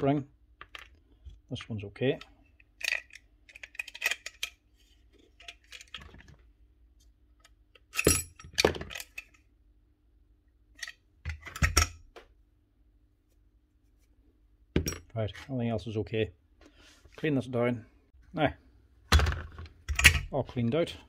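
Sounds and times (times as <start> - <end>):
small metal parts clinking: 2.8 - 4.6.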